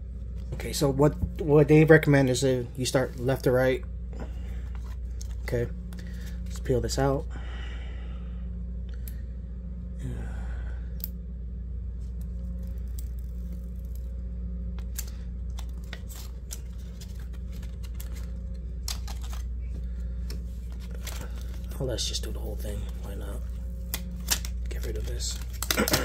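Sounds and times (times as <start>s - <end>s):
steady low hum: 0.0s - 26.0s
adhesive pieces peeling crackles: 23.9s - 26.0s.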